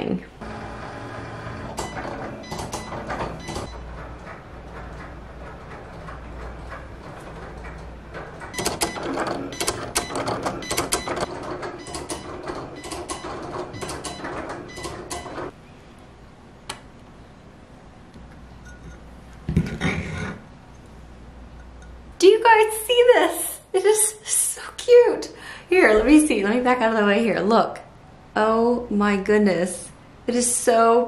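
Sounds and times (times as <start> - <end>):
cutting machine whirring and clicking: 0.4 - 6.3.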